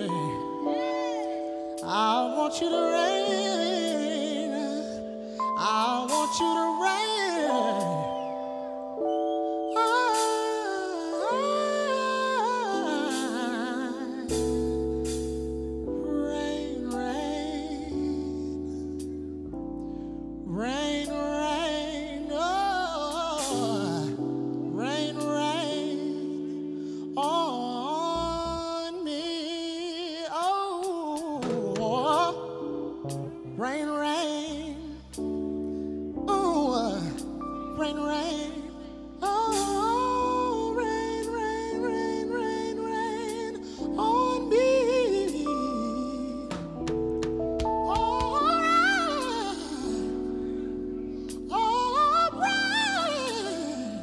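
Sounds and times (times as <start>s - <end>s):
person singing soulfully: 0.0s - 54.0s
held accompaniment chords: 31.3s - 54.0s.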